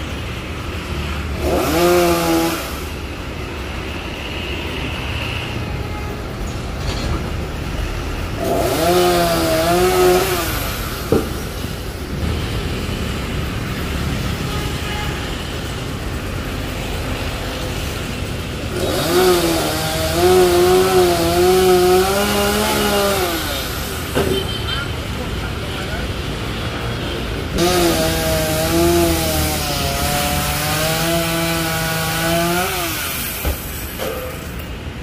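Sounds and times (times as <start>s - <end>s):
chainsaw idling and revving: 0.7s - 3.7s, 8.3s - 11.4s, 16.7s - 24.1s, 27.6s - 34.0s.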